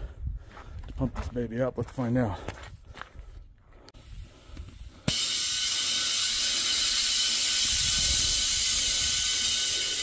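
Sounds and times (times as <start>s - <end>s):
compressed air hissing: 4.0s - 10.0s.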